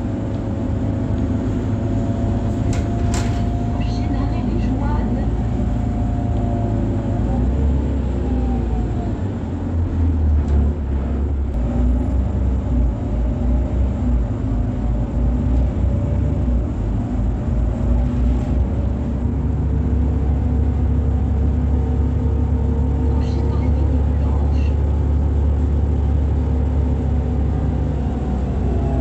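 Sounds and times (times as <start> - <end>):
bus diesel engine rumbling: 0.0 - 29.0.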